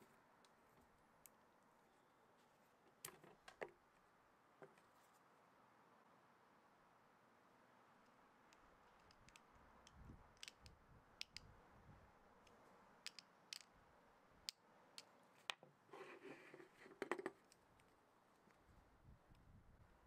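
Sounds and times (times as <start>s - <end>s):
metal pick clicking and scraping: 8.5s - 11.5s.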